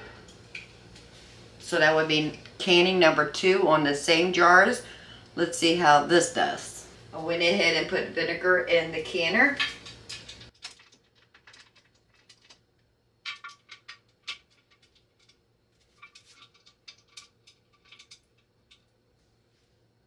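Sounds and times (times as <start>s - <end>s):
faint metallic clicks and scrapes: 13.3s - 19.0s.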